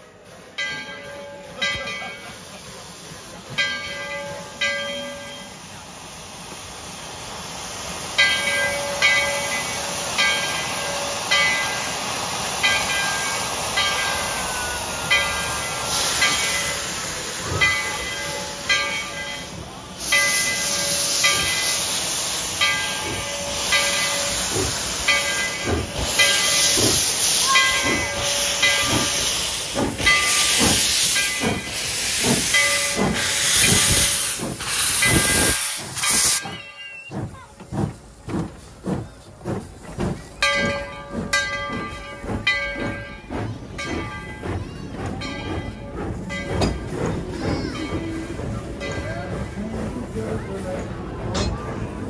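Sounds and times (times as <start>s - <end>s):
loud steam hiss: 0.0s - 52.0s
steam locomotive chuffing: 0.0s - 52.0s
bell-like ringing: 36.0s - 37.1s.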